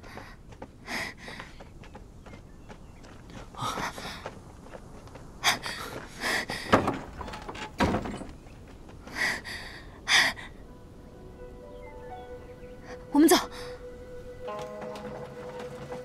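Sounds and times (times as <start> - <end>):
deep wooden thunk: 6.7 - 8.3.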